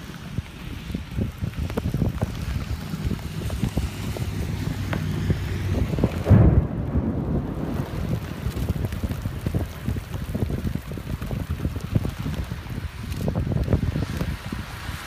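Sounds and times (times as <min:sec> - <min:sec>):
rain hits: 0:00.0 - 0:15.0
storm wind buffeting microphone: 0:00.0 - 0:15.0
low thump: 0:06.2 - 0:08.8.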